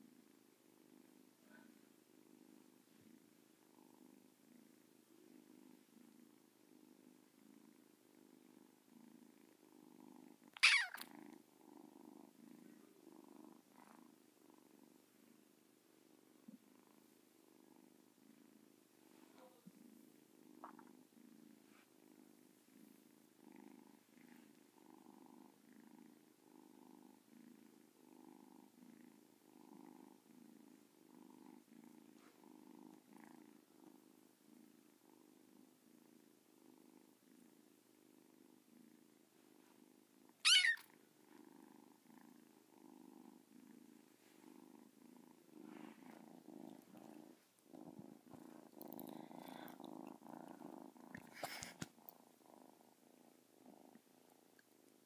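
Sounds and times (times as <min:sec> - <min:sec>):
kitten purring: 0:00.0 - 0:55.0.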